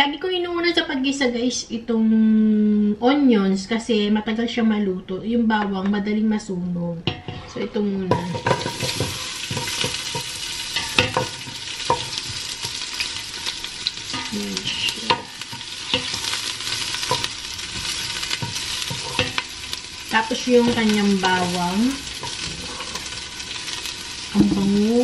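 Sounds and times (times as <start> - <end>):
onions sizzling in oil: 8.0 - 25.0.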